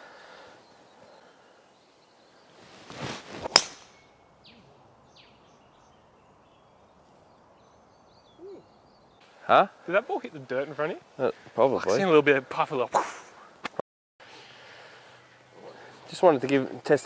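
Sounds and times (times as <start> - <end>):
golf club swing whoosh: 2.6 - 4.2
club striking golf ball: 3.4 - 4.1.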